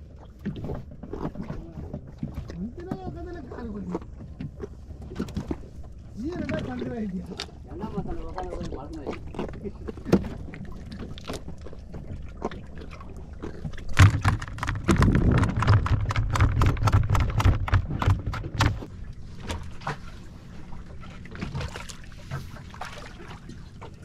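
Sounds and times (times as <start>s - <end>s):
fish thrashing in plastic basket: 13.8s - 18.9s.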